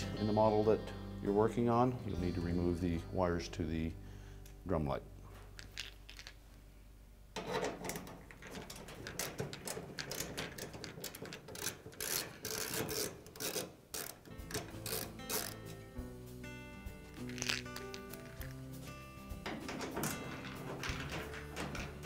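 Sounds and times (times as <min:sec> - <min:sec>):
metal and plastic clicking and scraping: 0:07.4 - 0:15.6, 0:19.4 - 0:22.0.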